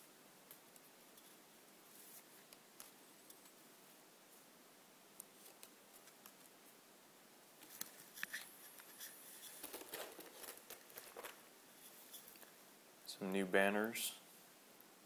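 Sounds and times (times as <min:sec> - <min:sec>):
cards and packaging clicks and rustles: 0:07.6 - 0:11.5.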